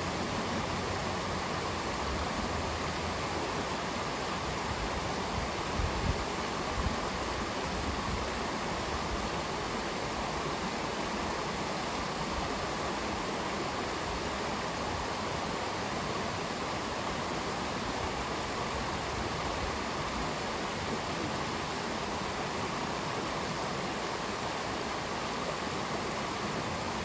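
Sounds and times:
stream rushing over stones: 0.0s - 27.0s.

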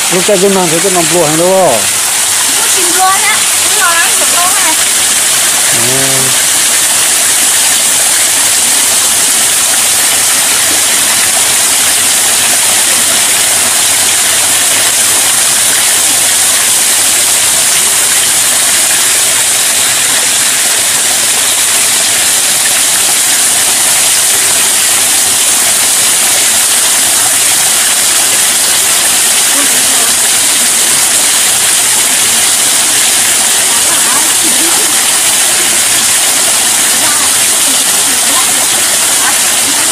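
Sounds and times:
waterfall rushing over rocks: 0.0s - 39.9s
brief vocal sound: 5.7s - 6.4s.

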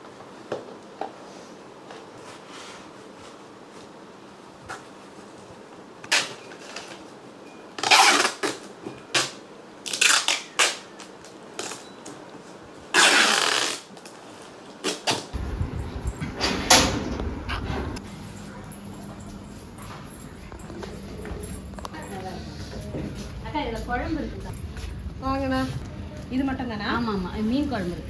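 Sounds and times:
packing tape ripping off roll: 6.0s - 7.0s, 7.8s - 11.8s, 12.9s - 14.1s, 14.8s - 15.3s.

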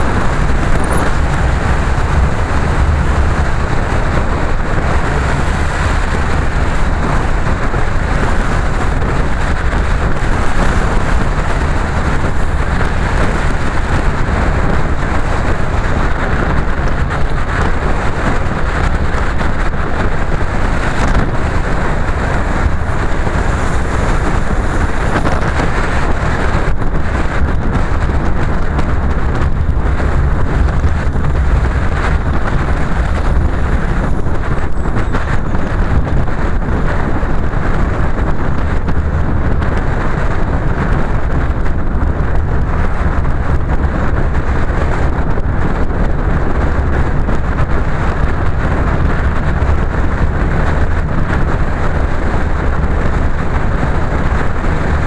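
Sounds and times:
tyres hissing on wet road: 0.0s - 27.9s
car engine and tyre rumble: 0.0s - 55.0s.

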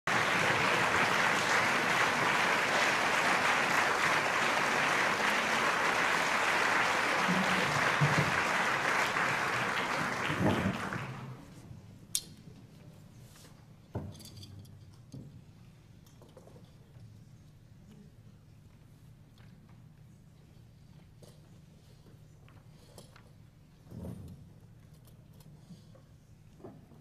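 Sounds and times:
audience applauding: 0.0s - 11.6s.

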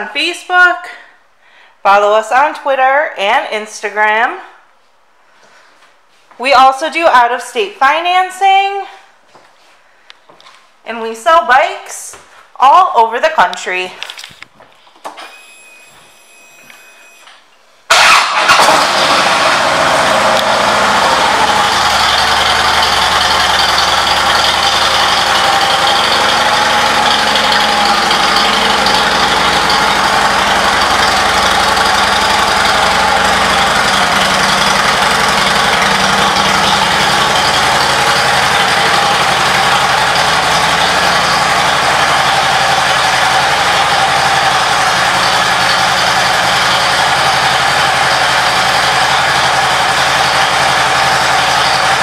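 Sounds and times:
motorcycle engine starting and idling: 15.1s - 52.0s.

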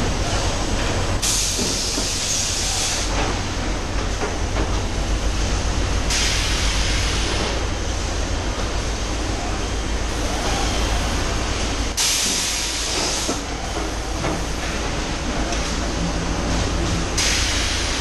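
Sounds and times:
compressed air hiss: 6.0s - 7.6s, 12.0s - 13.4s, 17.2s - 18.0s.

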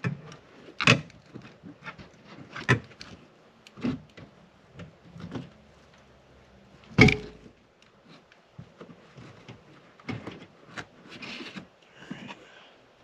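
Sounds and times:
clicks knocks and rustling: 6.9s - 7.6s.

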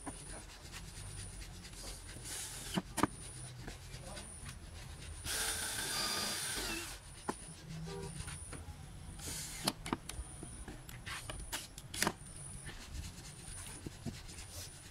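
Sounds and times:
rubbing on wooden panels: 0.0s - 8.5s, 12.6s - 14.9s
cordless drill running: 5.3s - 7.0s.

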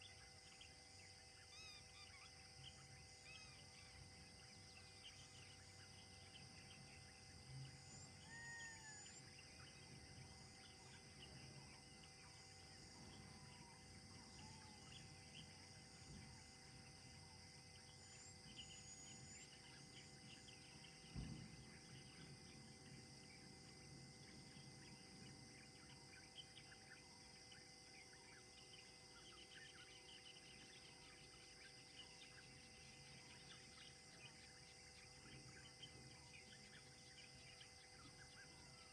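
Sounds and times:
bird chirps: 0.0s - 38.9s
high-pitched insect hum: 0.0s - 38.9s
low thump: 21.0s - 21.7s.

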